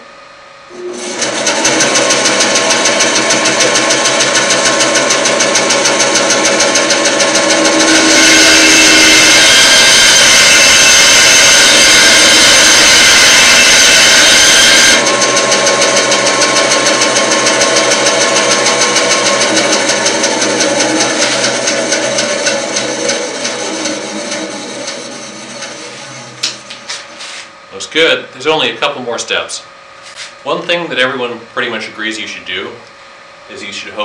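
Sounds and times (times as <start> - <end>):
bandsaw running: 0.7 - 27.5
saw blade cutting wood: 0.8 - 27.5.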